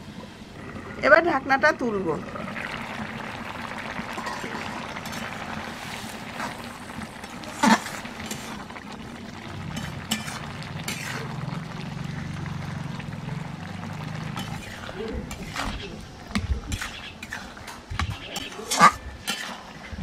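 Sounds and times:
low steady hum: 0.0s - 16.2s
spatula scraping a pan: 9.7s - 11.4s, 16.7s - 19.9s.

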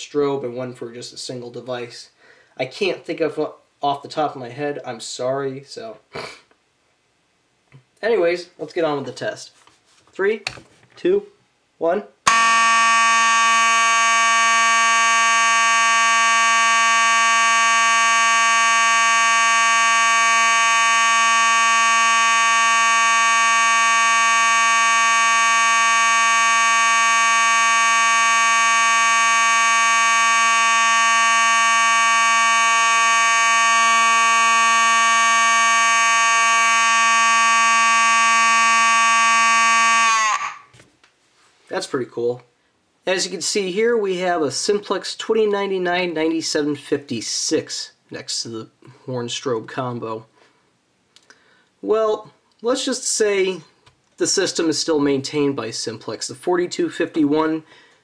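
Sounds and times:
fire alarm horn steady tone: 12.3s - 40.7s.

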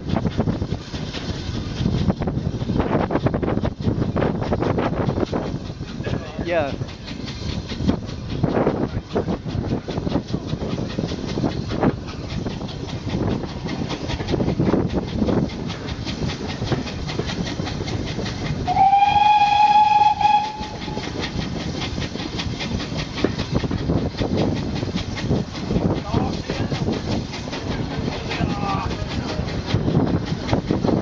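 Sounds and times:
train rumble: 0.0s - 31.0s
train wheels clattering: 0.0s - 31.0s
steam locomotive whistle: 18.7s - 21.1s.

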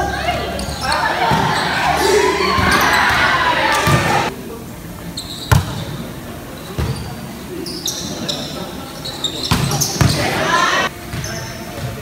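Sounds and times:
players calling out: 0.0s - 4.4s, 7.0s - 10.9s.

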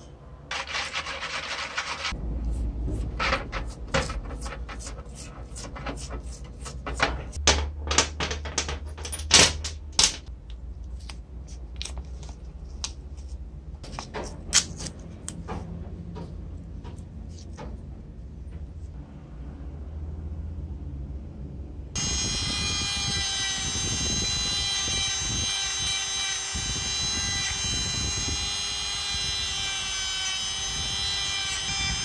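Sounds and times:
small metal parts clinking: 7.8s - 10.3s.

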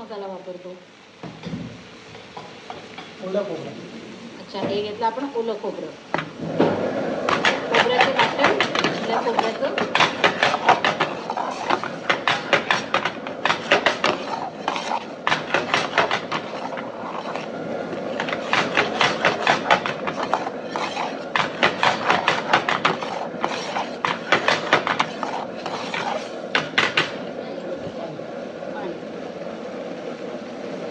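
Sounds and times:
steel ladle scraping metal pan: 7.2s - 27.2s.

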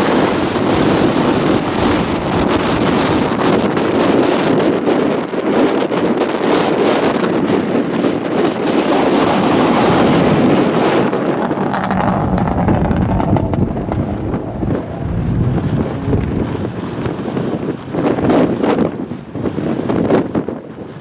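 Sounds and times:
wind buffeting microphone: 0.0s - 21.0s
rally car engine passing: 11.0s - 18.2s.

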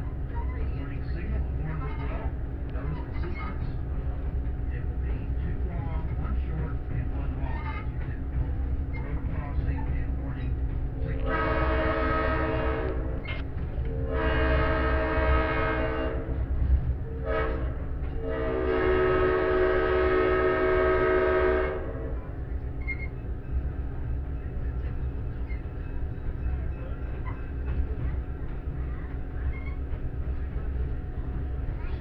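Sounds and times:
locomotive and train rumbling: 0.0s - 32.0s
locomotive air horn blasts: 11.2s - 13.2s, 13.9s - 16.4s, 17.2s - 22.2s.

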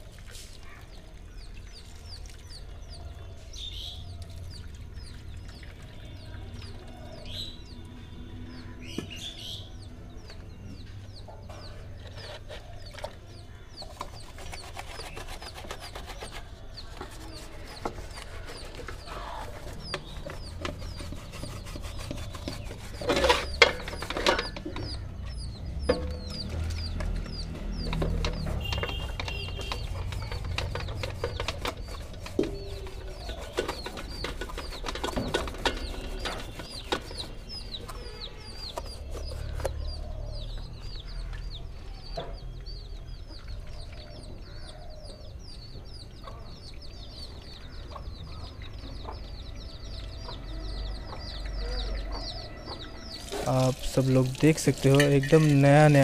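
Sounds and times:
birds chirping: 0.0s - 56.0s
paintbrush scrubbing a circuit board: 13.8s - 24.2s, 28.9s - 39.7s
water pouring: 53.2s - 56.0s.

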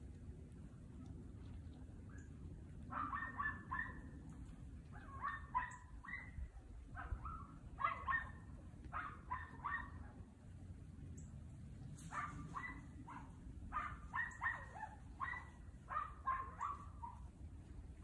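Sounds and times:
small dog yapping: 2.9s - 4.2s, 5.0s - 10.2s, 12.0s - 17.3s.

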